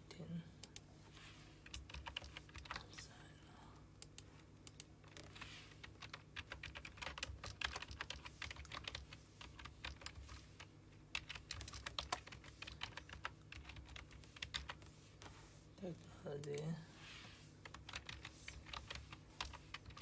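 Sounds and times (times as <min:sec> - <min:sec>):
typing on keyboard: 0:01.6 - 0:02.8, 0:04.8 - 0:14.8, 0:17.6 - 0:20.0.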